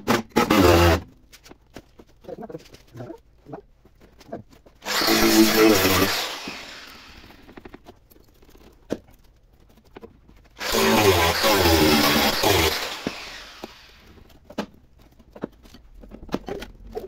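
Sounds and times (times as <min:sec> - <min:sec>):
angle grinder cutting metal: 0:00.1 - 0:01.0, 0:04.8 - 0:07.5, 0:10.6 - 0:14.0.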